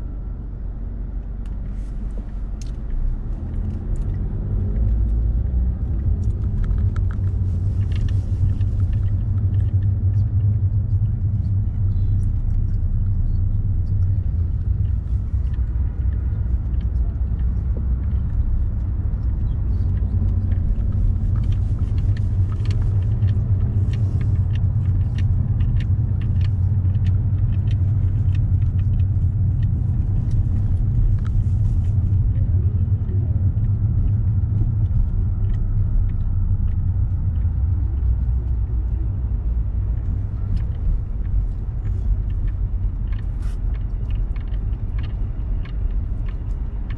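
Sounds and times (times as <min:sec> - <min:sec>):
car engine and road noise: 0:00.0 - 0:46.9.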